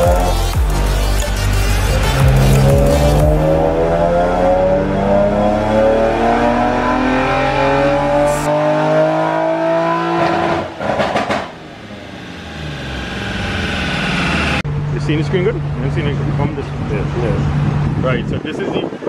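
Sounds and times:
car engine revving at full throttle: 0.0 - 18.3
rough rush as throttle shuts: 10.2 - 14.6.

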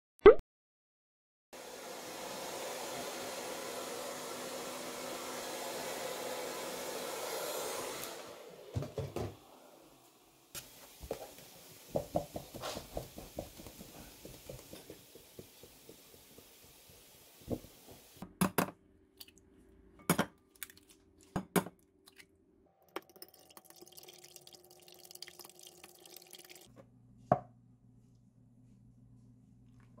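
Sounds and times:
hair dryer blowing: 1.6 - 15.6.

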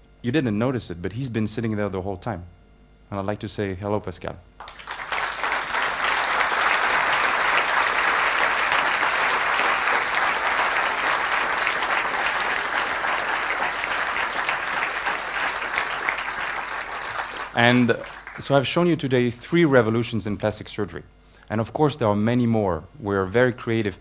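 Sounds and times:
audience applauding: 4.6 - 18.6.

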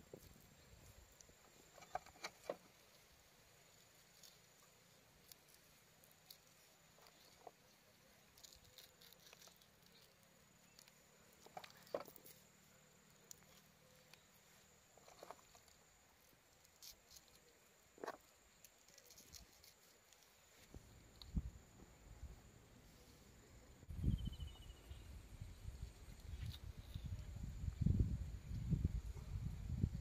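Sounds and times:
faint chirps: 17.0 - 27.8.

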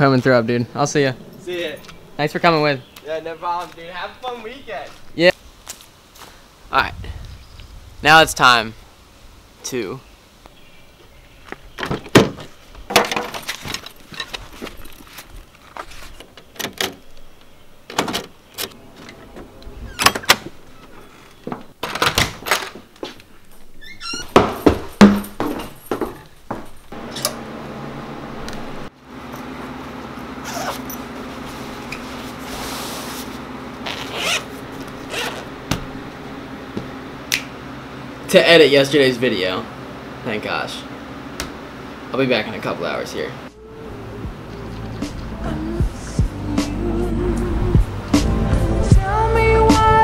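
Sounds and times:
steady low hum: 0.0 - 11.5, 26.8 - 49.7.

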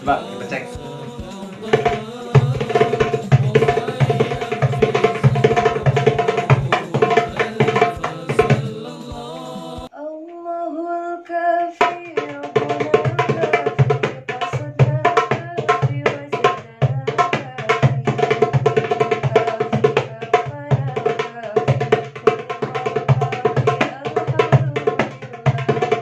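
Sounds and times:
hand drum rhythm: 0.0 - 9.9, 11.8 - 26.0
person singing: 0.0 - 18.1.

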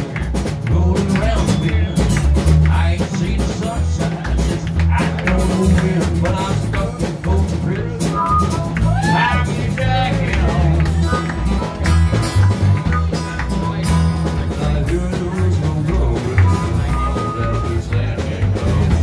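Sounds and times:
man singing: 0.0 - 11.8, 13.1 - 19.0
acoustic guitar strumming: 0.0 - 19.0
heavy low beat: 0.0 - 19.0.

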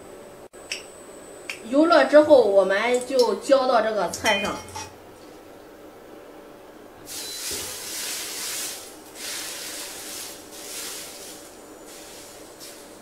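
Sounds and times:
hot oil sizzling: 7.1 - 13.0.

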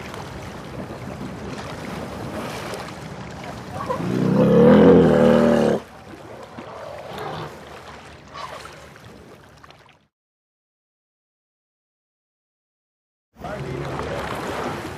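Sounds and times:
loud low animatronic roar: 4.0 - 5.8.

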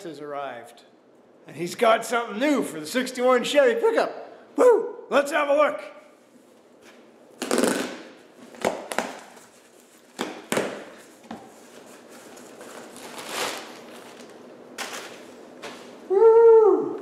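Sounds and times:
knife slitting packing tape: 7.4 - 8.0.

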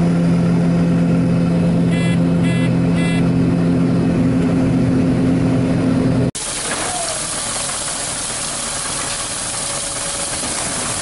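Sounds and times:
combine harvester engine drone: 0.0 - 11.0
short electronic beeps: 1.9 - 3.3.

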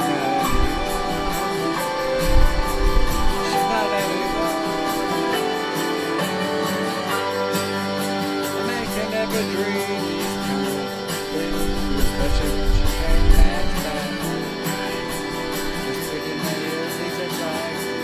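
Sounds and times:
guitar-led song: 0.0 - 18.0.

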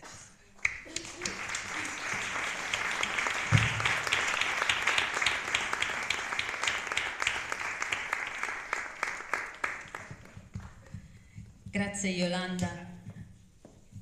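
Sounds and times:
audience applauding: 0.0 - 10.8.

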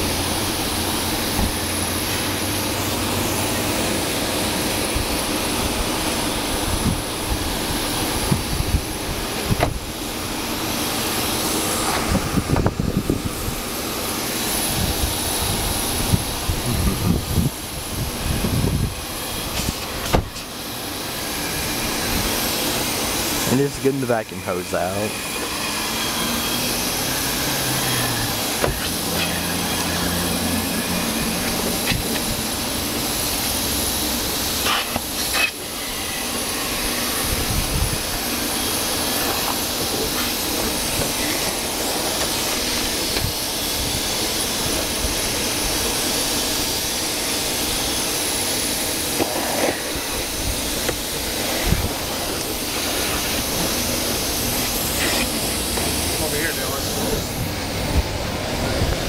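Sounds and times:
vacuum hose suction hiss: 0.0 - 59.0.

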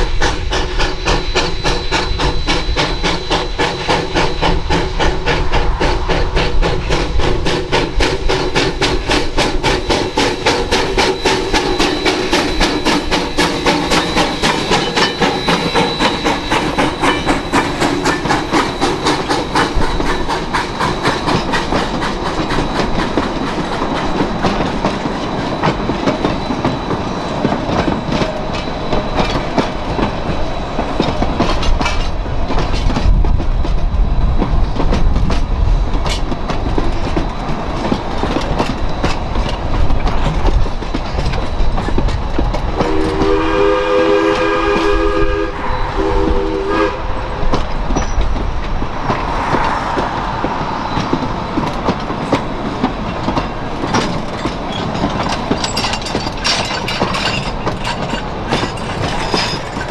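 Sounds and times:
steam locomotive whistle: 0.0 - 6.3, 7.5 - 22.9, 42.7 - 47.6
train rhythmic clicking: 0.0 - 59.9.

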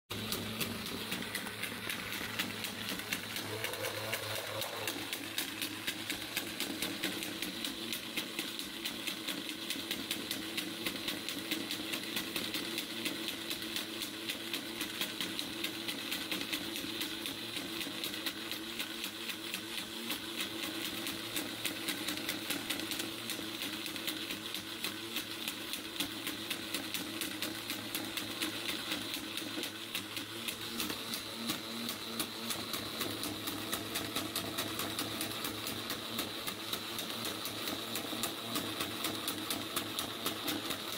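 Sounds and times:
motor whirring: 0.1 - 12.2.

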